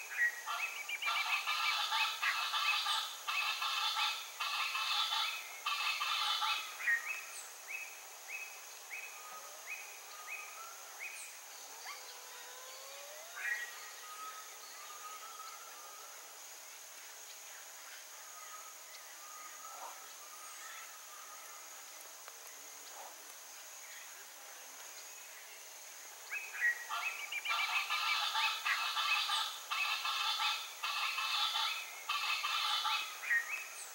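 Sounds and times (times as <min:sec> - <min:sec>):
birds calling: 0:00.0 - 0:07.5, 0:26.3 - 0:33.9
harsh chorus of bird calls: 0:00.0 - 0:16.7, 0:26.3 - 0:33.9
high insect buzz: 0:00.0 - 0:33.9.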